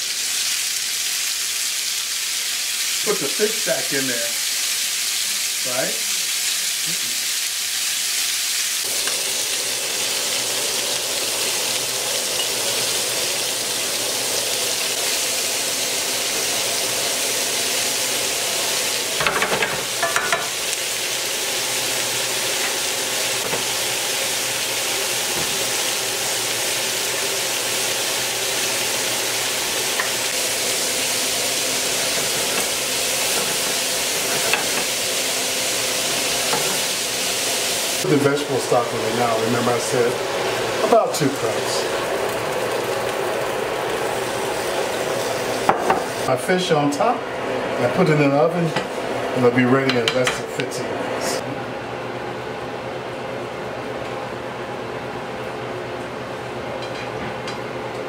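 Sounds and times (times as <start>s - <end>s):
oil sizzling in a skillet: 0.0s - 46.3s.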